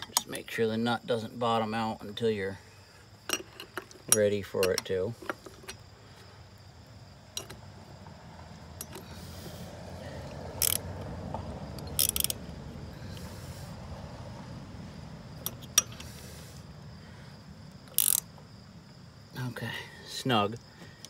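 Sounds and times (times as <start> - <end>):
ratchet wrench clicking: 10.6 - 10.9, 11.8 - 12.4, 17.9 - 18.3.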